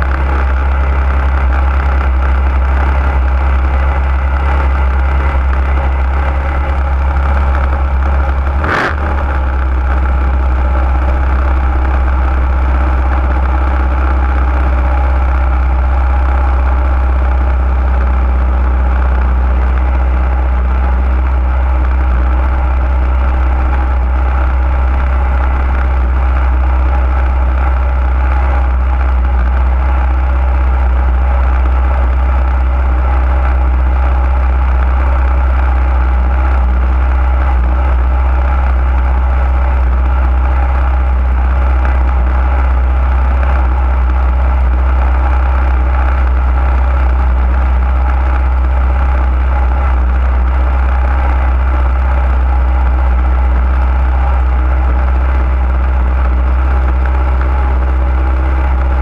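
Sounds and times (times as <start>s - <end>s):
small engine idling: 0.0s - 59.0s.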